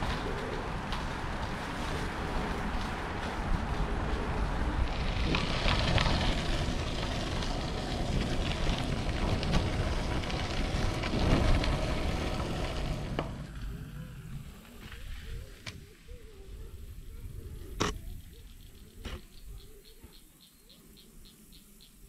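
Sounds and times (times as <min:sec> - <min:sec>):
bike clicks and rattles: 0:00.0 - 0:15.8
tyres crunching on gravel: 0:00.0 - 0:16.0
wind buffeting microphone: 0:00.0 - 0:19.8.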